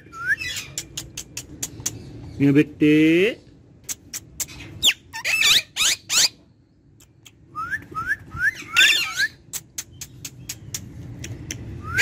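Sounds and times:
parakeet chirping and whistling: 0:00.0 - 0:00.8, 0:04.8 - 0:06.4, 0:07.5 - 0:09.5.

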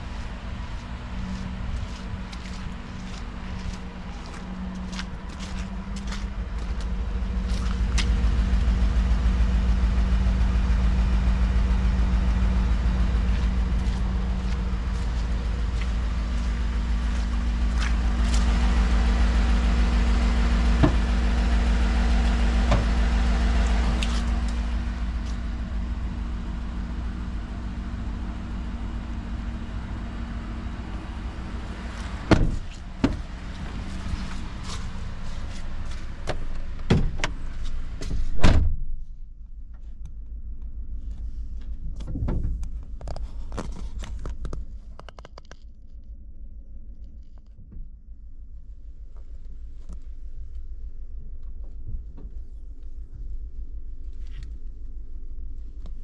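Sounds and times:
pickup truck engine idling: 0:00.0 - 0:38.1.

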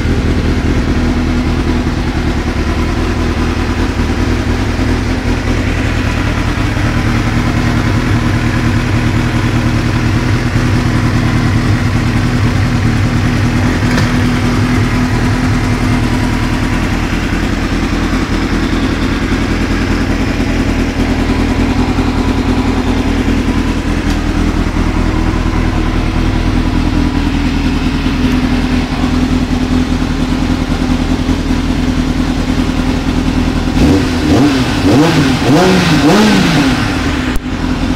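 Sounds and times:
motorcycle engine idling: 0:00.0 - 0:37.9
engine revving: 0:33.6 - 0:37.4.

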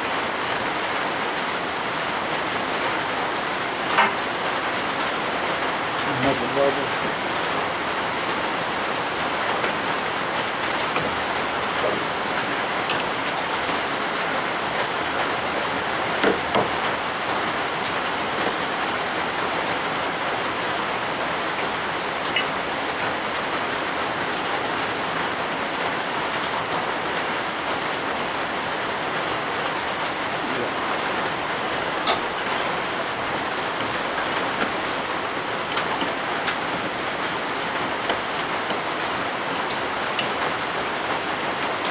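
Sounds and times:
metal tools clicking: 0:11.4 - 0:11.9, 0:14.2 - 0:16.3, 0:18.8 - 0:19.2, 0:19.9 - 0:20.9, 0:31.6 - 0:35.0.

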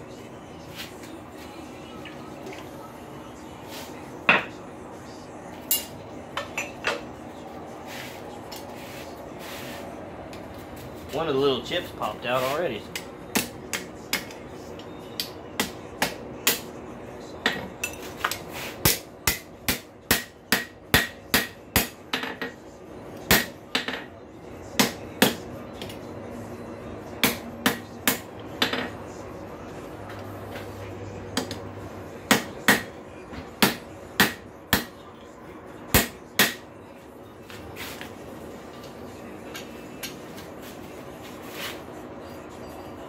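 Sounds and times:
hammer striking chisel on metal: 0:05.7 - 0:07.0, 0:12.9 - 0:16.7, 0:17.4 - 0:22.6, 0:23.3 - 0:24.1, 0:24.8 - 0:26.0, 0:27.2 - 0:28.9, 0:32.3 - 0:33.0, 0:33.6 - 0:35.0, 0:35.9 - 0:36.6.

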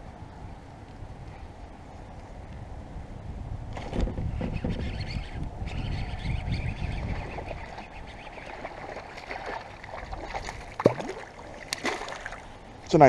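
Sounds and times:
low rumbling water: 0:00.0 - 0:13.0
fish splashing at surface: 0:08.4 - 0:12.5.

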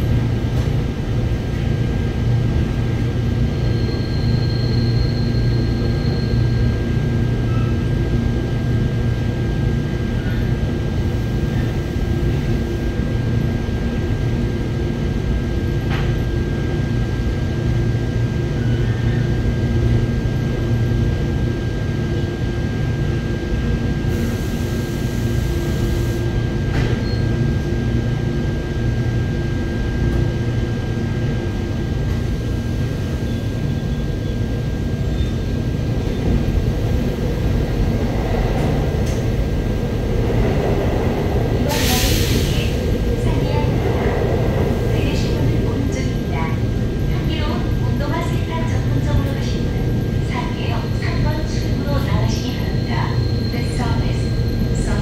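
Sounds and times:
train wheels rumbling on track: 0:00.0 - 0:55.0
brief high squeal: 0:03.6 - 0:06.6.

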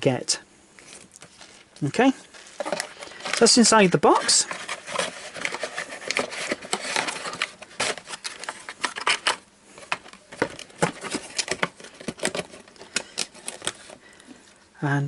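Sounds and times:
cardboard box clicks and rustles: 0:02.5 - 0:14.0.

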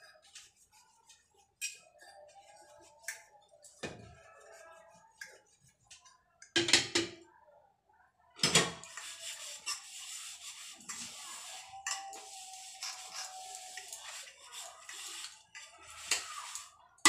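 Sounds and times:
hiss of washing at sink: 0:08.9 - 0:16.8.

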